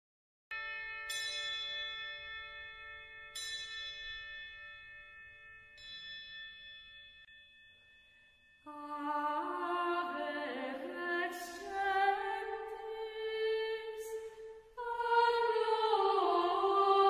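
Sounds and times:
bell tolling: 0.5s - 8.6s.

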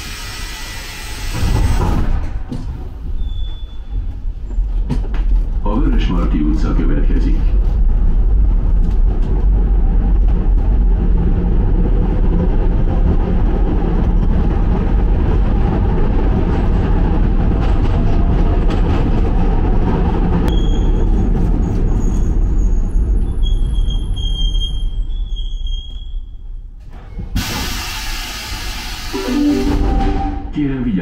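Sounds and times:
train wheels rumbling in tunnel: 0.0s - 31.0s
high-pitched train squeal: 3.1s - 4.7s, 20.5s - 26.4s.

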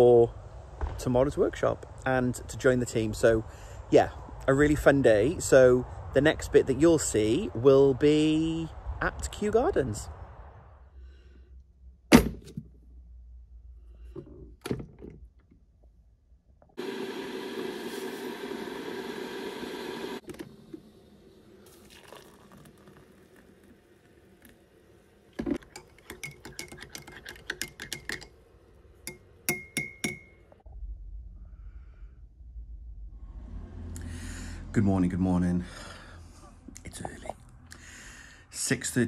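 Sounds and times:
teaspoon stirring in a mug: 25.6s - 28.3s.

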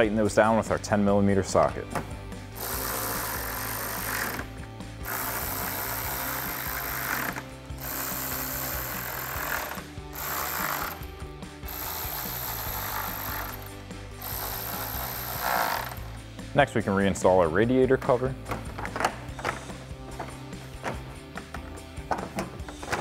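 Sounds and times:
cordless ratchet running bolts: 2.6s - 11.1s, 11.7s - 16.2s.

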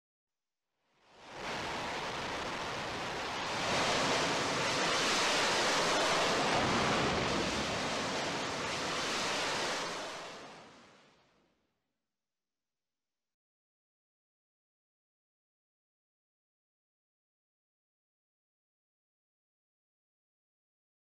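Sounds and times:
jet engine roaring: 1.4s - 10.5s.

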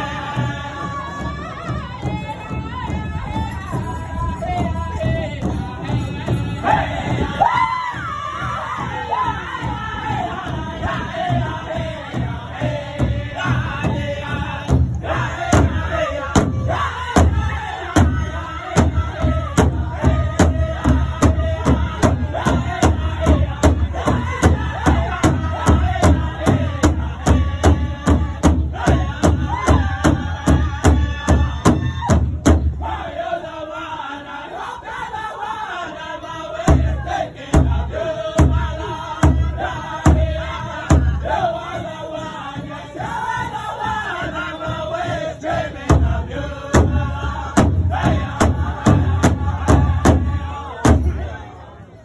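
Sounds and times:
group singing in chorus: 0.0s - 52.0s
large drum beating: 7.0s - 32.9s, 36.6s - 41.9s, 43.4s - 51.3s.

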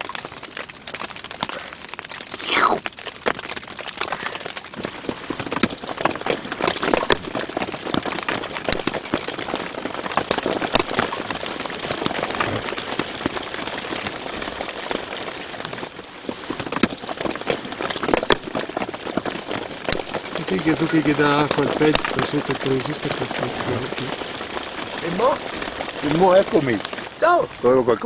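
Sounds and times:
rain pattering on tent fabric: 0.0s - 28.0s.

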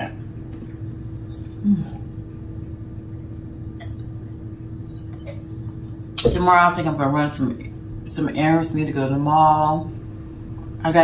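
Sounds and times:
low electrical hum: 0.0s - 11.0s
person humming: 1.6s - 2.2s.

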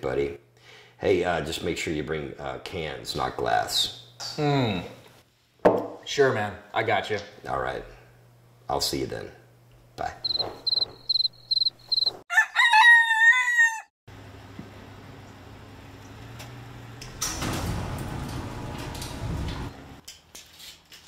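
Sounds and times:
crickets chirping: 10.2s - 12.2s
rooster crowing: 10.3s - 13.9s.

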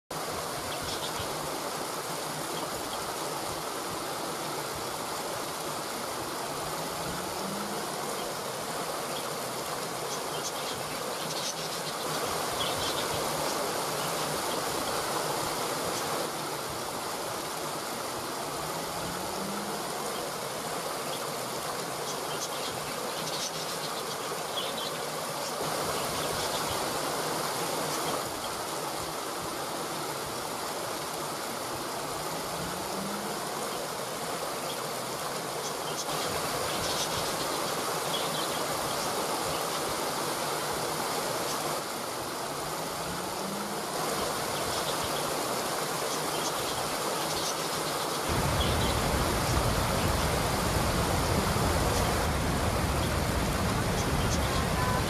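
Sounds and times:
water rushing over rocks: 0.1s - 55.0s.

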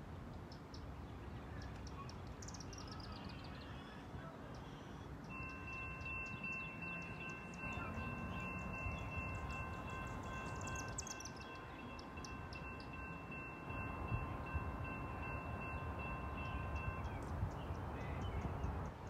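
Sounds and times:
high-pitched ringing: 5.3s - 17.4s.

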